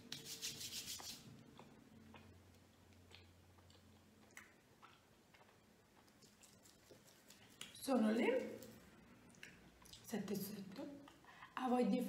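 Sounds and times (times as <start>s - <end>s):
hands rubbing together: 0.1s - 1.2s.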